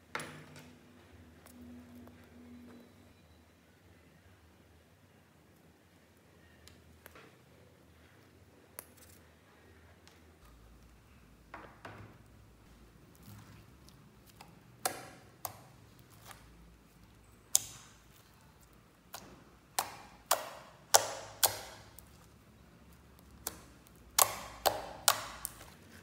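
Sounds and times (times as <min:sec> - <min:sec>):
slime popping and clicking: 0:17.5 - 0:18.0, 0:19.1 - 0:22.2, 0:23.2 - 0:25.8.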